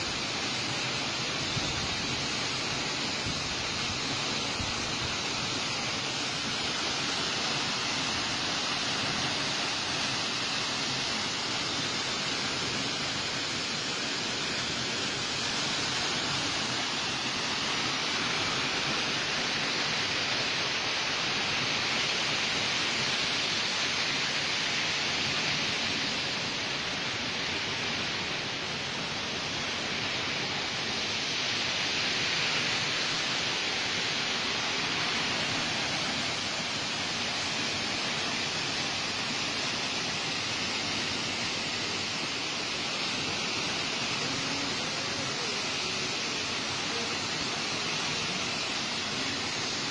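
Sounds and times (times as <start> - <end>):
waterfall rushing: 0.0 - 49.9.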